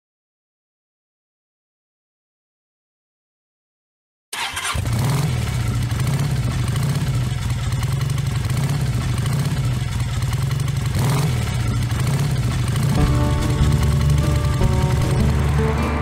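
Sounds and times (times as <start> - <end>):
motorcycle engine running: 4.4 - 16.0
road noise: 4.4 - 16.0.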